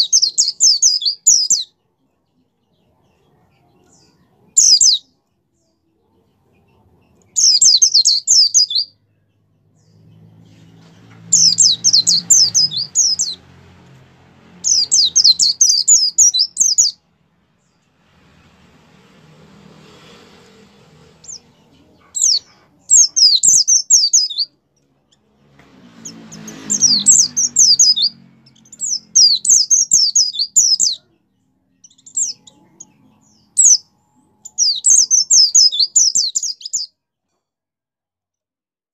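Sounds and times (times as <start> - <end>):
bird twittering: 7.3 - 9.1, 11.3 - 13.4, 14.6 - 17.0, 21.2 - 24.6, 26.0 - 31.1, 31.8 - 36.9.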